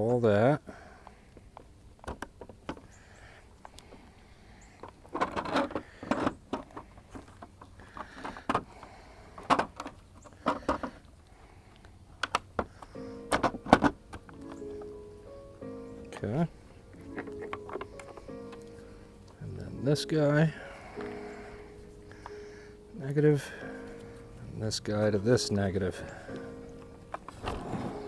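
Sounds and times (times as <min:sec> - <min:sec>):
plastic clicks and knocks: 0:02.0 - 0:02.9, 0:04.8 - 0:08.7, 0:09.4 - 0:11.0, 0:12.2 - 0:14.6, 0:17.0 - 0:18.7
music: 0:12.9 - 0:28.0
rustling: 0:25.9 - 0:28.0.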